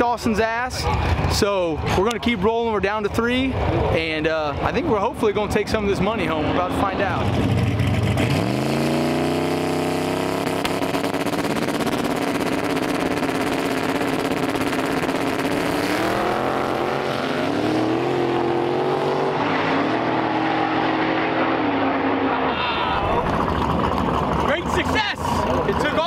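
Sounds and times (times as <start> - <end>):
drag racing cars at full throttle: 0.0 - 26.0.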